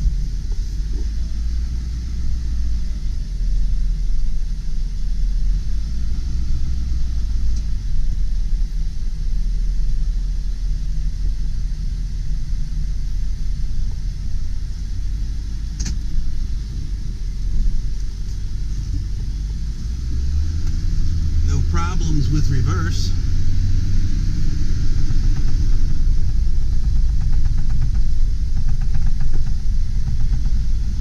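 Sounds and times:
diesel truck engine rumbling: 0:00.0 - 0:31.0
sharp click: 0:15.8 - 0:16.0.

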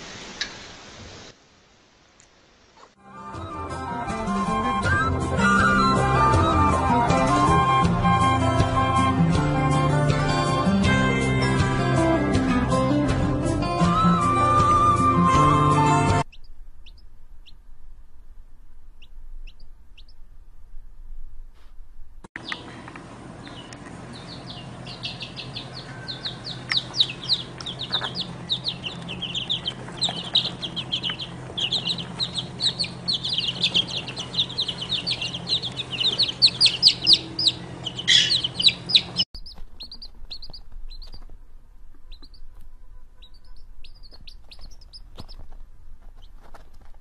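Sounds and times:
baby chicks peeping: 0:15.4 - 0:17.6, 0:19.0 - 0:20.2, 0:22.4 - 0:47.0
low steady hum: 0:16.2 - 0:47.0.

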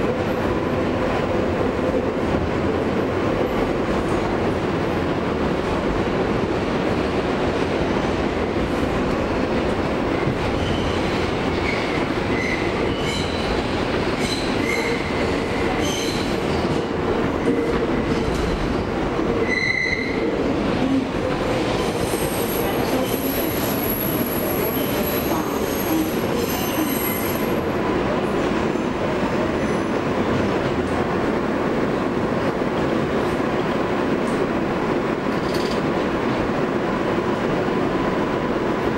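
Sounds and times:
subway wheels rumbling on track: 0:00.0 - 0:38.9.

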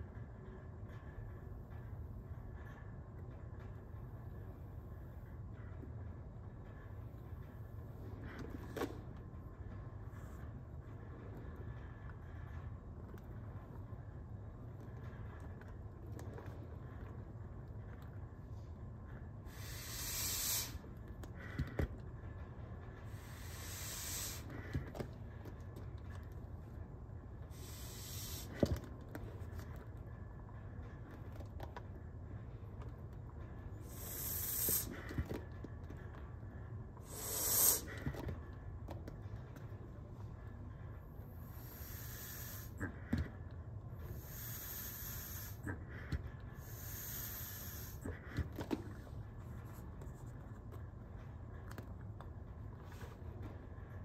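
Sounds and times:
air hissing through resuscitator bag: 0:19.2 - 0:21.7, 0:23.0 - 0:25.0, 0:27.4 - 0:29.6, 0:33.6 - 0:35.5, 0:37.0 - 0:38.4, 0:41.1 - 0:43.3, 0:44.0 - 0:49.1.

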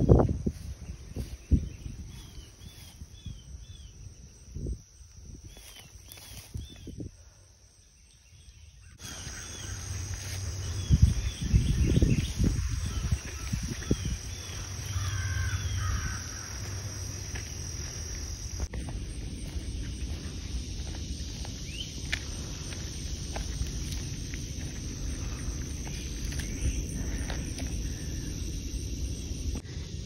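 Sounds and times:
high insect drone: 0:00.0 - 0:30.0
birds calling: 0:08.1 - 0:30.0.

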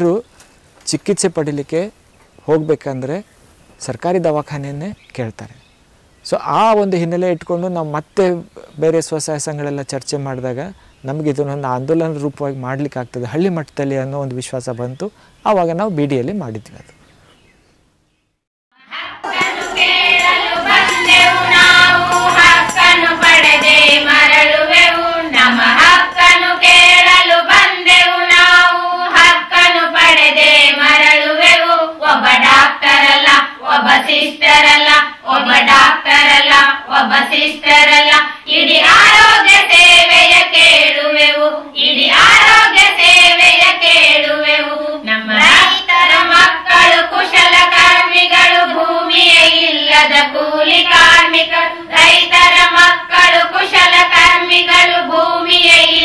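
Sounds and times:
voices singing: 0:18.8 - 0:56.0
percussion beat: 0:19.2 - 0:24.5.

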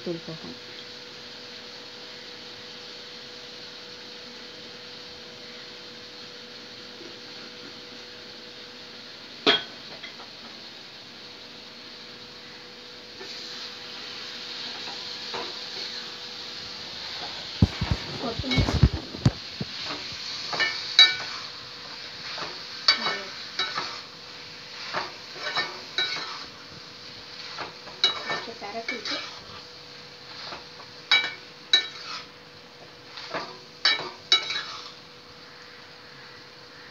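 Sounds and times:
food sizzling in a pan: 0:00.0 - 0:36.9
metal spatula scraping a pan: 0:19.7 - 0:21.6, 0:22.2 - 0:24.1, 0:24.7 - 0:26.6, 0:27.4 - 0:29.6, 0:30.3 - 0:32.3, 0:33.1 - 0:35.0.

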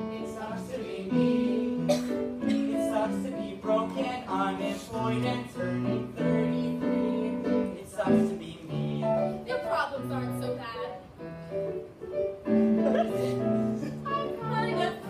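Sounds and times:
voices singing: 0:00.0 - 0:09.2, 0:13.0 - 0:15.0
piano accompaniment: 0:00.0 - 0:15.0.

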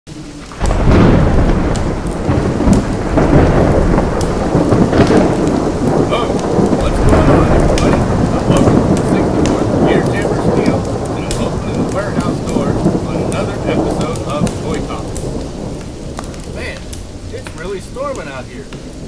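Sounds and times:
crackles: 0:00.1 - 0:19.0
heavy rain: 0:00.1 - 0:19.0
low rumbling thunder: 0:00.1 - 0:19.0.

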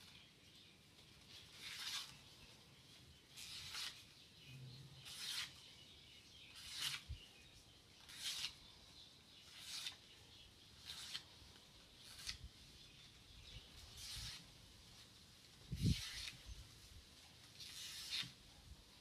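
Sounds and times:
pin scratching leaves: 0:03.3 - 0:04.1, 0:05.0 - 0:05.7, 0:06.5 - 0:07.1, 0:08.0 - 0:08.6, 0:10.8 - 0:11.3, 0:13.8 - 0:14.5, 0:15.7 - 0:16.6, 0:17.5 - 0:18.4.

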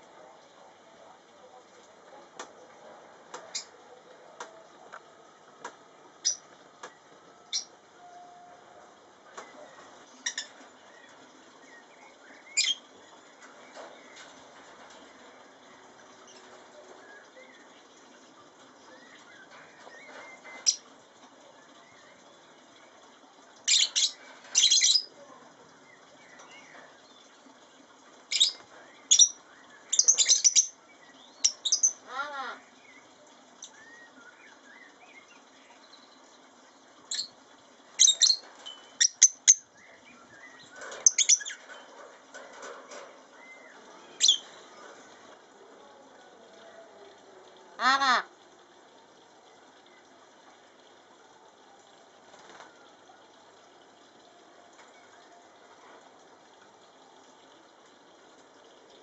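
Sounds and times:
birds chirping: 0:09.3 - 0:45.4.

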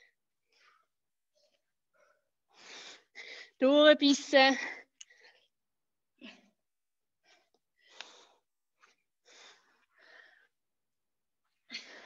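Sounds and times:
person breathing hard: 0:00.0 - 0:03.6, 0:07.2 - 0:10.6.

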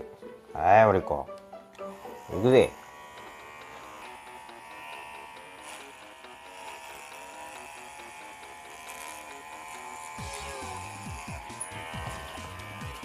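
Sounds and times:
electric clippers whining: 0:01.0 - 0:13.0.

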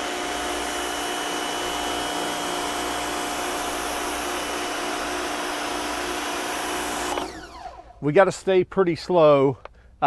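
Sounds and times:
pressure washer motor whine: 0:00.0 - 0:08.0.

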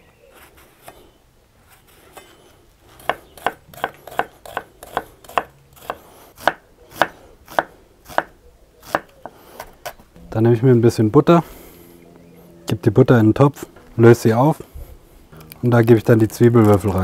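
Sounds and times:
knife chopping on wooden board: 0:03.0 - 0:08.3, 0:08.9 - 0:09.1.

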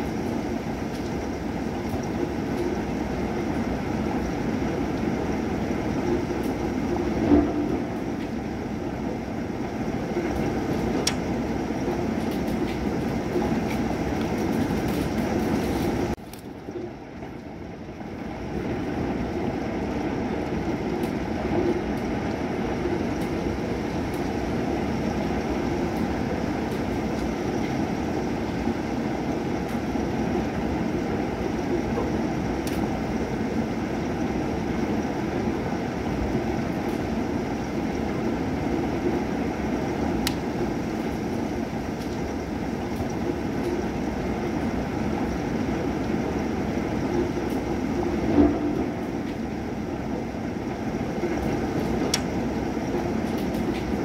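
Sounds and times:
rain and storm rumble: 0:00.0 - 0:54.0.

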